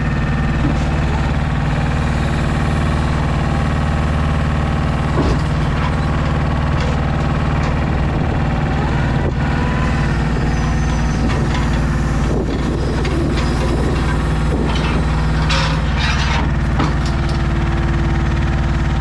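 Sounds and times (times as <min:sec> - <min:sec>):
diesel truck engine running: 0:00.0 - 0:19.0
rattles: 0:11.0 - 0:17.6.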